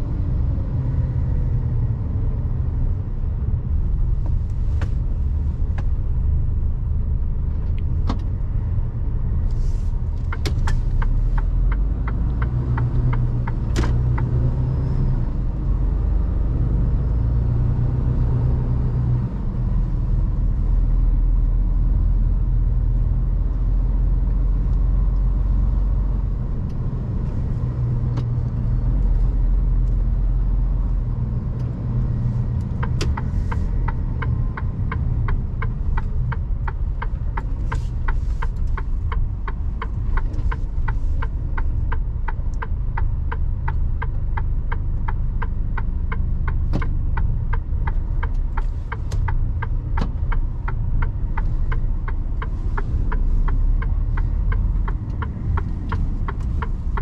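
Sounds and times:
truck rumbling: 0.0s - 57.0s
sharp ticks: 32.5s - 57.0s.

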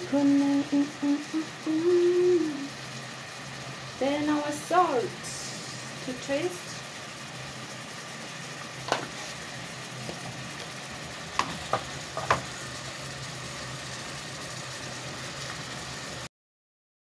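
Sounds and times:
steady low hum: 0.0s - 15.9s
wooden spoon knocking on metal pot: 11.4s - 12.5s.

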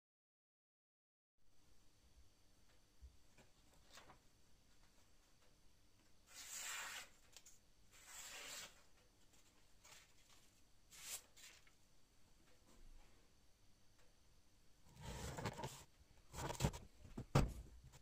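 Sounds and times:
blade slicing paper: 6.3s - 8.9s.

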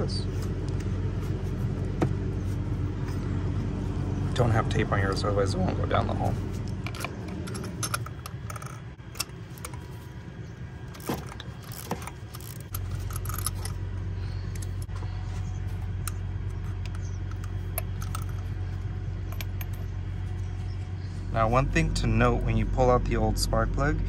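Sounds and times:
steady low hum: 0.0s - 24.0s
ratchet clicking: 11.0s - 13.7s.

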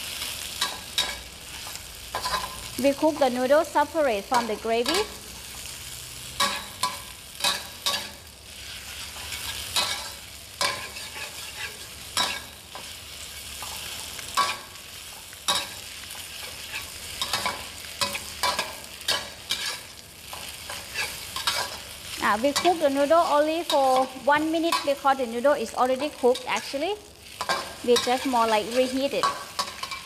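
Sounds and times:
food sizzling: 0.0s - 30.0s
spatula scraping metal wok: 4.2s - 30.0s.

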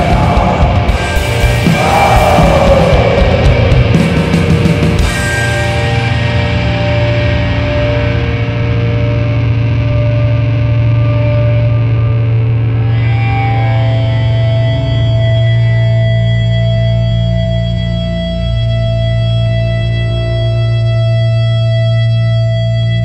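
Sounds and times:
drums: 0.0s - 17.5s
distorted guitar and bass drone: 0.0s - 23.0s.

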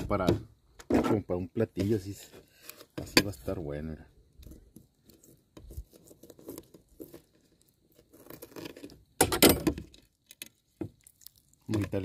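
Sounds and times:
shrimp shell crackling and tearing: 4.4s - 9.2s, 9.8s - 12.0s.

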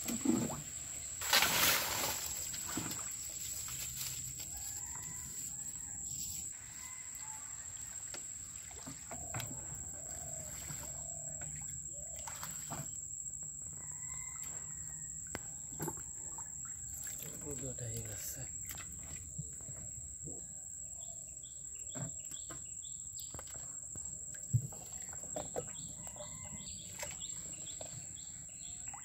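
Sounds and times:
water splashing and weeds rustling: 0.0s - 13.0s, 16.9s - 19.3s.

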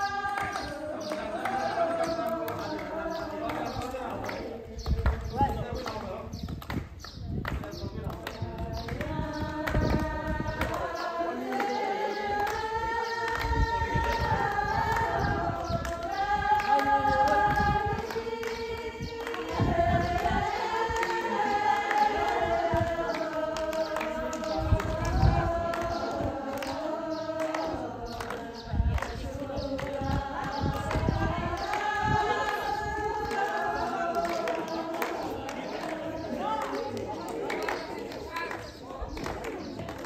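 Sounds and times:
group singing folk song: 0.0s - 6.6s, 7.4s - 40.0s.

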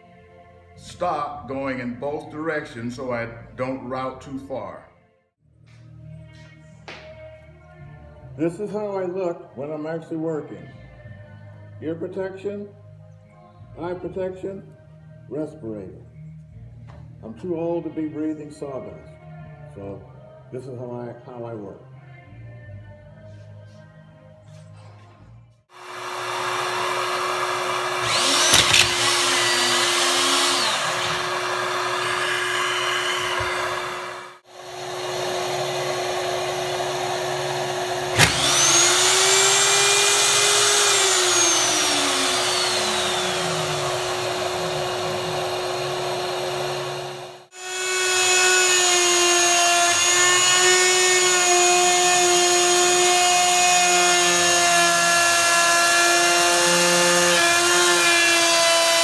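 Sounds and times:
motor spinning up and winding down: 25.8s - 51.4s
router whining: 25.8s - 59.0s.

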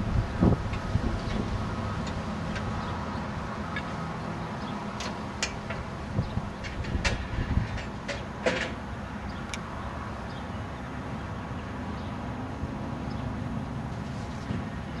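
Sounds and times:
truck rolling on rails: 0.0s - 10.3s.

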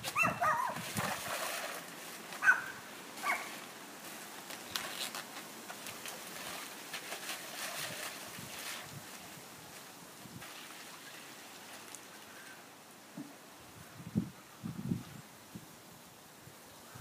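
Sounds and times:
plastic bag crinkling: 4.4s - 7.4s.

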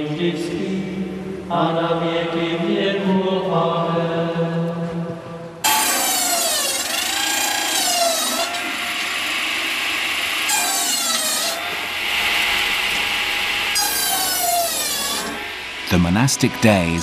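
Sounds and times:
hiss of running saw blade: 5.6s - 15.6s
circular saw cutting logs: 5.6s - 16.0s.

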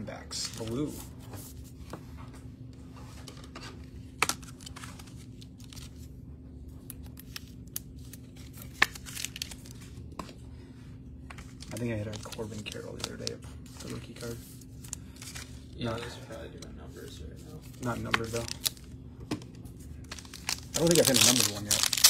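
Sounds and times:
faint steady hum: 0.0s - 22.0s
foil wrappers crinkling: 4.2s - 6.1s, 6.9s - 10.0s, 11.4s - 15.9s, 17.6s - 18.9s, 19.8s - 22.0s.

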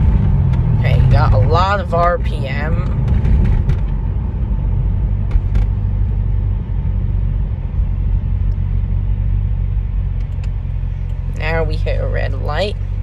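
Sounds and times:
car engine deep rumble: 0.0s - 13.0s.

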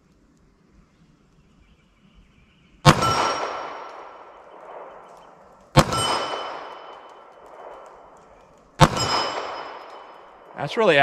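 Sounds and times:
pistol shots: 2.8s - 10.5s.

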